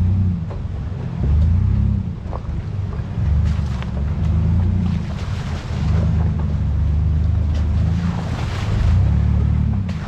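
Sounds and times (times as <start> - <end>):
jeep engine at low revs: 0.0 - 10.0.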